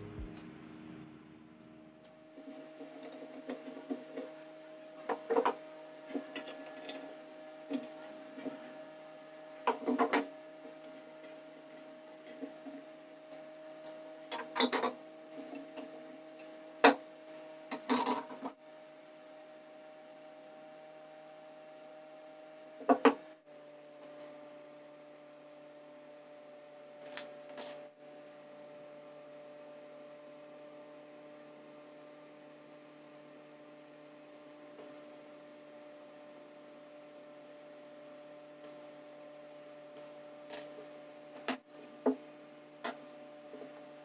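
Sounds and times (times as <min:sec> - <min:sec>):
low hum: 0:00.0 - 0:03.8.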